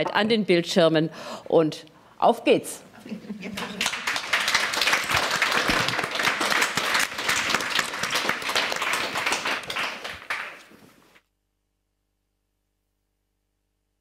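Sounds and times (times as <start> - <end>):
audience applause: 3.5 - 10.9.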